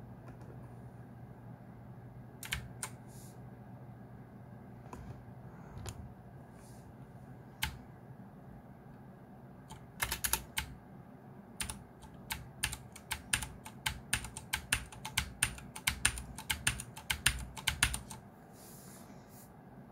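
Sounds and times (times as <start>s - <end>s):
mechanical keyboard typing clicks: 2.4s - 3.0s, 9.7s - 10.8s, 11.6s - 18.2s.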